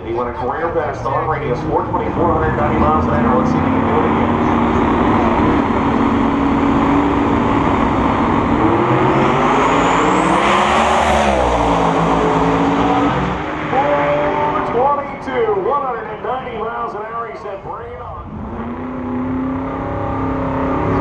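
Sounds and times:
drag racing engines revving: 0.0s - 21.0s.

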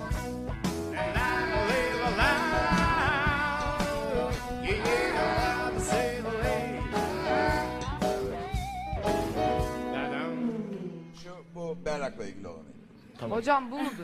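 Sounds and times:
rock band playing: 0.0s - 11.0s
man singing high wordless wail: 1.0s - 7.0s.

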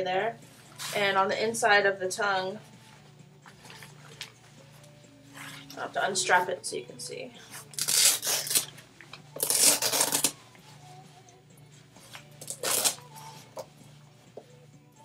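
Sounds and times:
sneaker strap ripping open: 7.7s - 8.7s, 9.4s - 10.4s, 12.4s - 13.1s.

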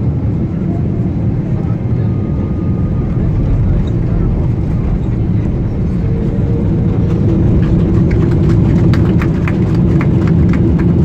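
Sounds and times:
jet cabin engine rumble: 0.0s - 11.0s.

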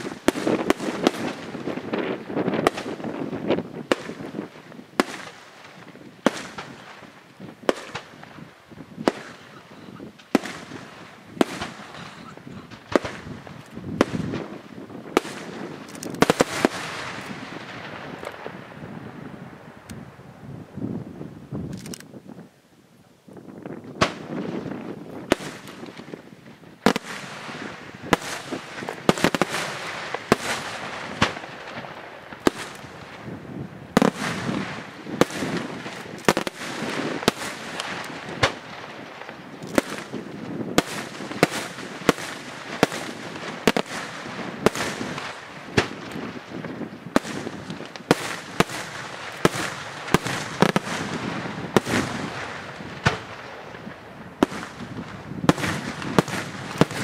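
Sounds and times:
firework crackle and rumble: 0.0s - 57.0s
firework shells bursting: 26.8s - 57.0s.

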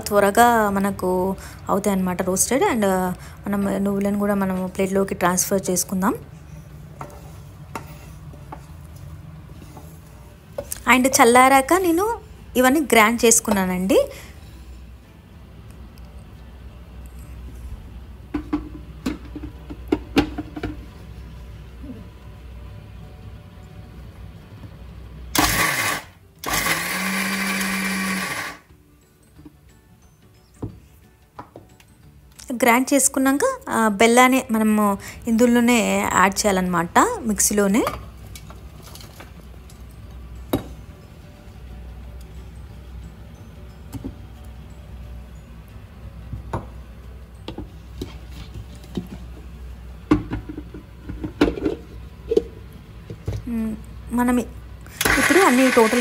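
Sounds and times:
mixer grinder grinding: 25.4s - 28.7s, 54.9s - 56.0s.

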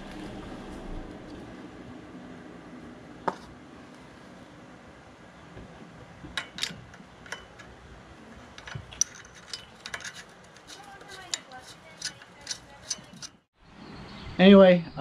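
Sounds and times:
light metal clicks and taps: 6.3s - 7.7s, 8.5s - 13.4s.

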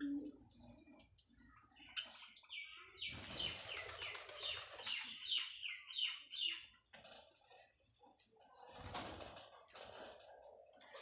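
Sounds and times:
sparrow chirping: 1.4s - 6.8s
rustle of wings: 3.1s - 5.0s.

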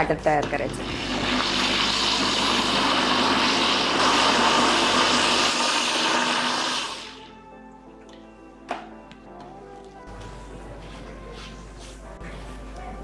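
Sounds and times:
blender motor running: 0.7s - 7.3s.

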